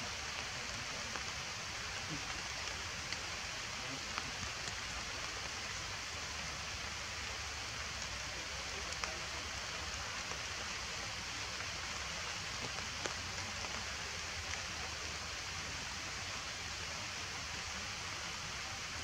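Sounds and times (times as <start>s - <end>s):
steady rain falling: 0.0s - 19.0s
single raindrops ticking: 7.8s - 9.2s, 11.5s - 14.7s.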